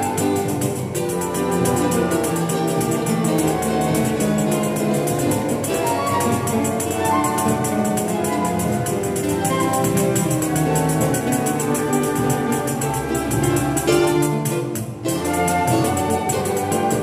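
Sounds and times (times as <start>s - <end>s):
string orchestra playing: 0.0s - 17.0s.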